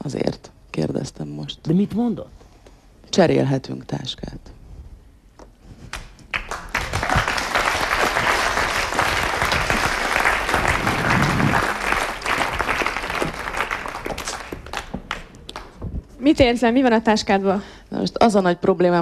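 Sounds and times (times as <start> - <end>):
audience applauding: 6.0 - 15.8.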